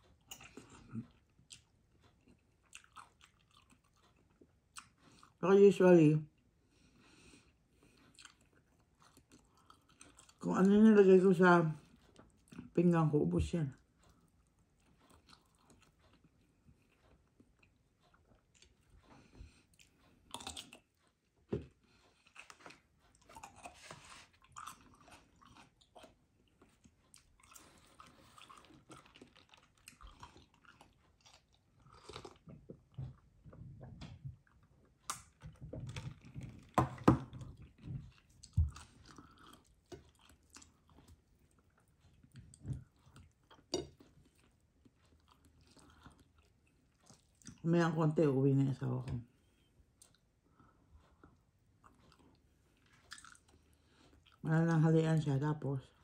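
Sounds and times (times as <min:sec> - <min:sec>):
person chewing and biting chicken: 0:00.1 - 0:05.4, 0:07.9 - 0:10.4, 0:19.7 - 0:21.1, 0:22.0 - 0:33.3, 0:37.6 - 0:47.6, 0:51.8 - 0:54.4.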